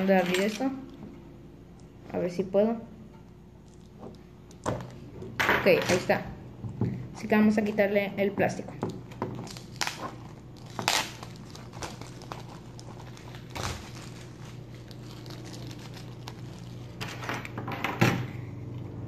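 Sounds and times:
shrink-wrap crinkling and tearing: 9.3s - 17.5s.

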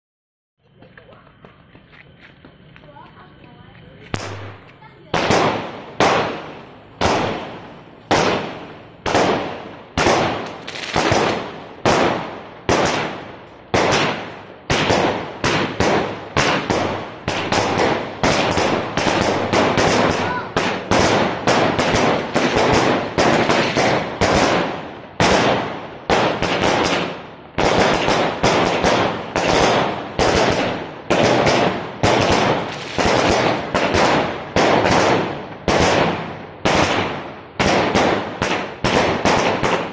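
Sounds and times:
fireworks bangs with echo: 4.1s - 39.9s.

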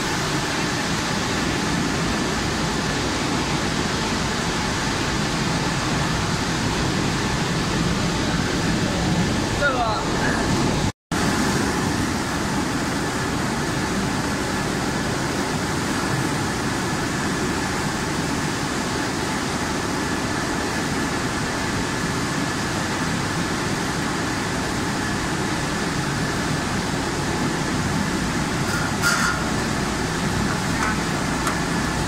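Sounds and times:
industrial machine rumble: 0.0s - 32.0s
faint high machine whine: 11.8s - 32.0s.

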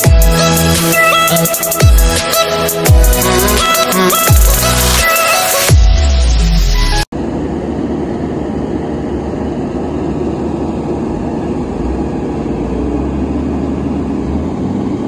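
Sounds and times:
heavy machinery diesel engines droning: 7.2s - 15.0s.

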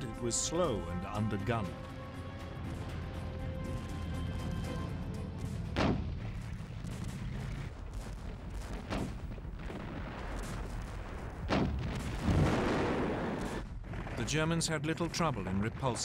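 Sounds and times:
dramatic music score: 0.0s - 7.8s
continuous low rumble: 2.4s - 12.2s
artillery shell explosions: 5.7s - 16.0s.

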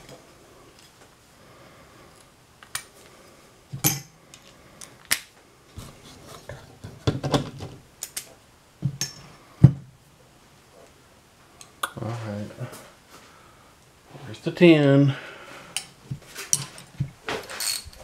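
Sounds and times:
metal tools clinking: 15.8s - 18.0s.

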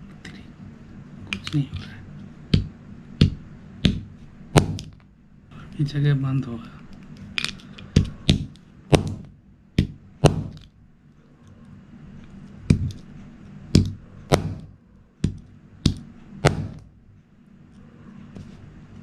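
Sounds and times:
hammer knocking on wood: 2.5s - 4.9s, 8.0s - 10.6s, 13.8s - 16.8s.

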